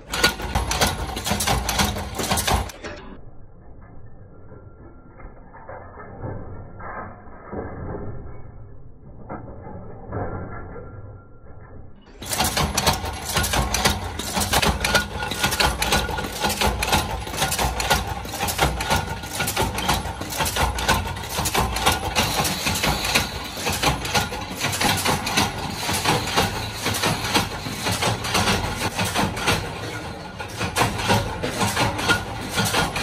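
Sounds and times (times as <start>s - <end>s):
metalworking machines clattering: 0.0s - 3.2s, 5.2s - 33.0s.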